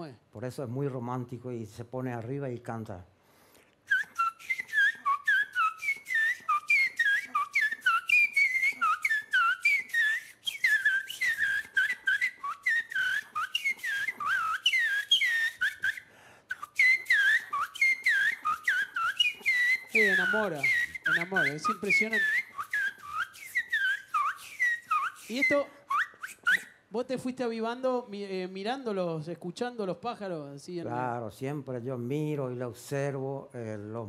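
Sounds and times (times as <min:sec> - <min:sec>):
man whistling with fingers: 0:03.8 - 0:26.9.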